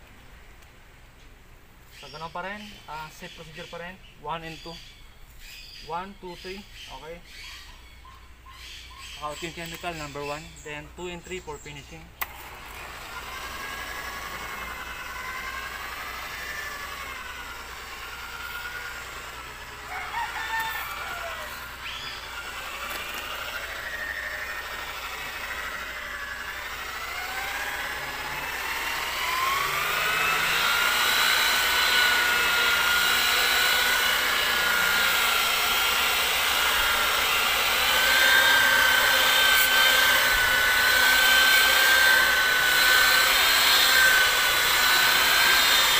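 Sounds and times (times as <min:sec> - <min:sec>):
electric polisher motor whine: 0:12.2 - 0:45.9.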